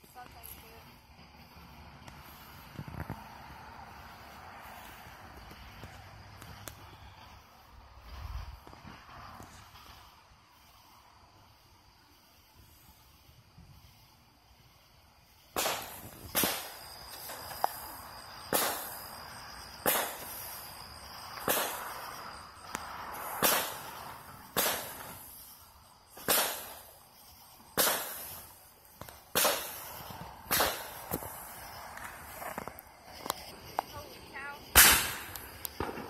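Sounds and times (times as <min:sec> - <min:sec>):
fireworks bangs: 0:15.4 - 0:36.0.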